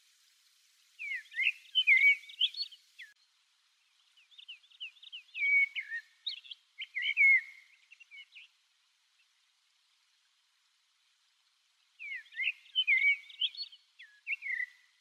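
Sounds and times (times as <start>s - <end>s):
blackbird singing whistled notes: 1.0s - 3.2s, 4.2s - 8.5s, 12.0s - 15.0s.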